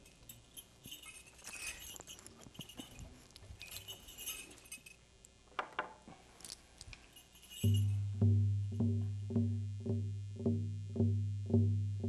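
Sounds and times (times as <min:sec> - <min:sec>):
metallic jingling of regalia: 0:00.0 - 0:05.1, 0:07.0 - 0:08.3
frame drum beat: 0:07.6 - 0:12.0.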